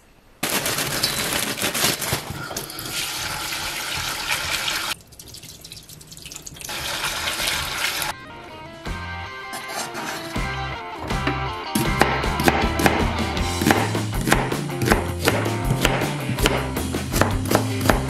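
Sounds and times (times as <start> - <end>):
tap water running into metal sink: 2.6 - 8.1
background music: 8.1 - 18.0.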